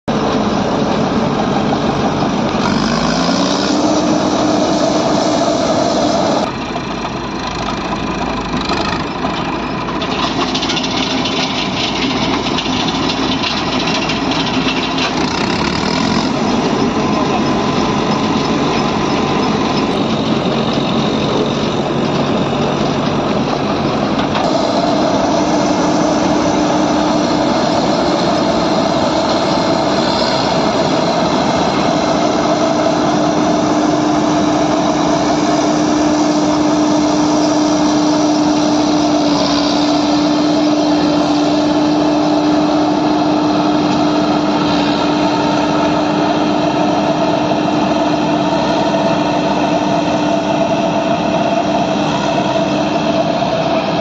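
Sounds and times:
combine harvester engine drone: 0:00.0 - 0:54.0
steady machinery hum: 0:03.6 - 0:06.6, 0:16.3 - 0:54.0.

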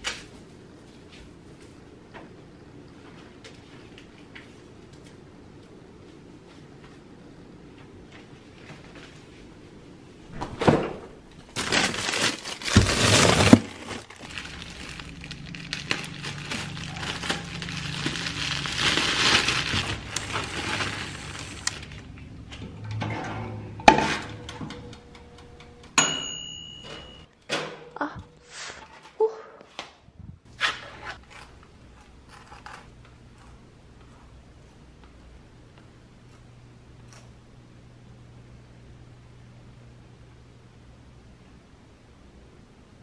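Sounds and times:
plastic bag crinkling: 0:11.4 - 0:22.1
kitchen knocks and clatters: 0:26.6 - 0:27.9.

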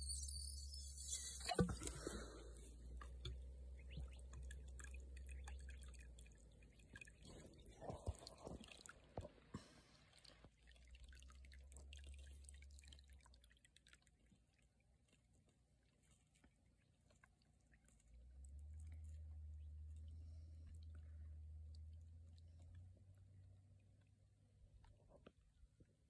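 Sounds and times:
water trickling into pond: 0:00.0 - 0:24.9.

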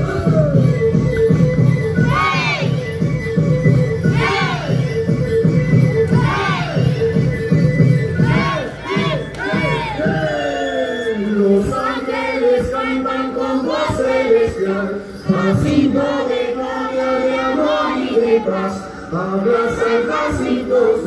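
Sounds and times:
women singing in chorus: 0:04.0 - 0:04.8, 0:08.2 - 0:10.1, 0:11.6 - 0:21.0.

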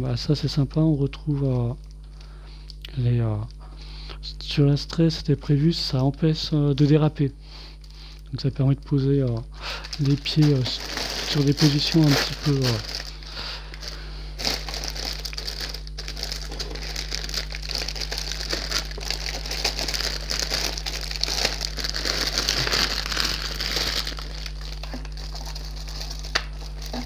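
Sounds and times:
plastic bags crinkling: 0:09.6 - 0:27.0.

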